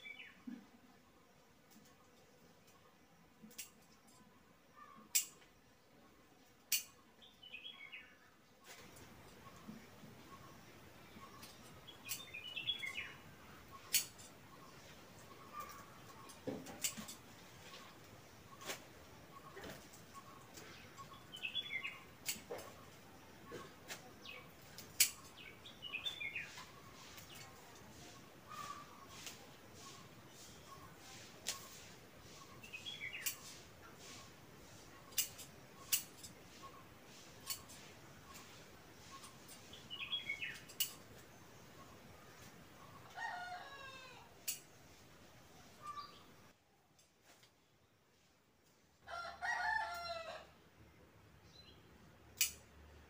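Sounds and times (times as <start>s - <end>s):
songbird singing: 0.0s - 47.0s, 51.4s - 52.2s
small bird chirping: 6.7s - 43.2s, 43.8s - 46.4s
pruning shears snipping stems: 23.8s - 25.4s, 31.4s - 31.8s, 33.2s - 34.2s, 34.8s - 38.5s, 52.4s - 52.6s.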